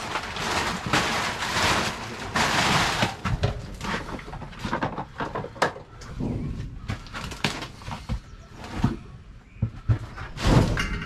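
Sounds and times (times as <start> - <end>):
plastic tarp rustling: 0.0 - 5.0, 10.3 - 11.0
clutter knocking and clattering: 0.0 - 11.0.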